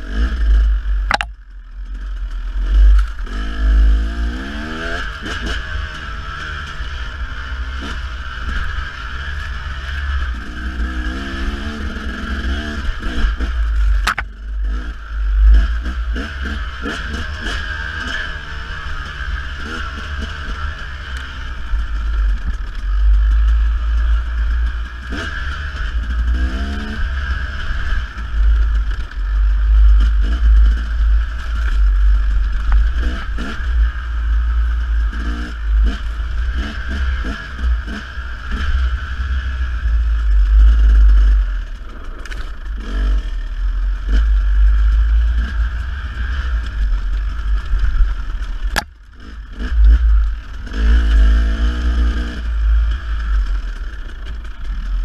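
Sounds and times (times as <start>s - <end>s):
dirt bike engine revving: 0.0s - 1.3s, 1.9s - 55.0s
clatter of stones: 13.8s - 14.4s.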